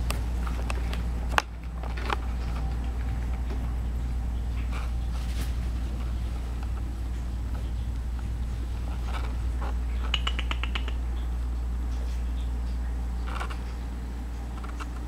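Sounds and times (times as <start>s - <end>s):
steady low hum: 0.0s - 15.0s
cat chattering trill: 9.9s - 11.3s.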